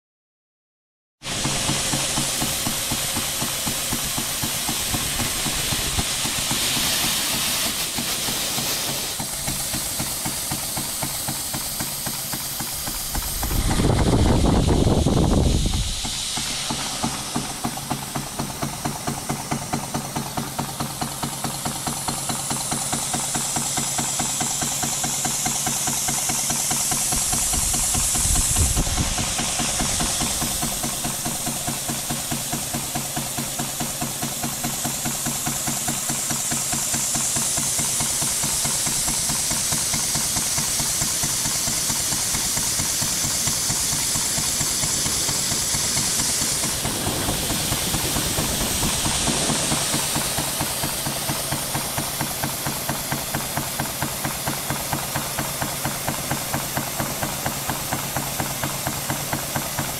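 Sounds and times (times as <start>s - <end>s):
steam engine exhaust beats: 1.2s - 59.9s
steam hiss: 1.2s - 59.9s.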